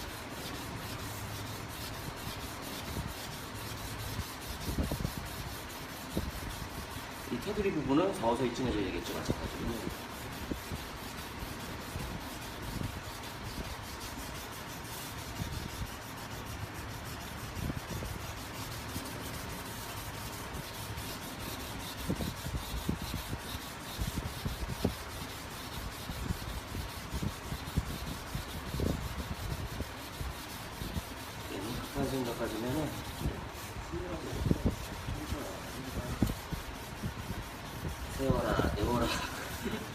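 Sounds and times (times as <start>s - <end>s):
sandpaper rubbing on wet paint: 0.0s - 39.9s.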